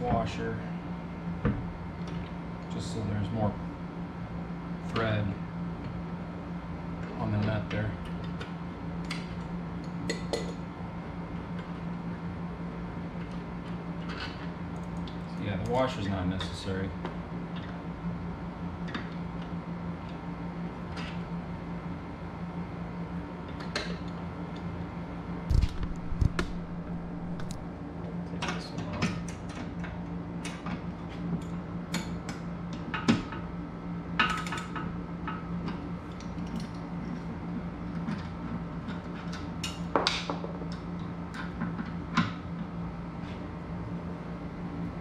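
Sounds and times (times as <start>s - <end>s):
steady low hum: 0.0s - 34.2s, 40.7s - 45.0s
heavy metal knocks: 25.5s - 27.6s.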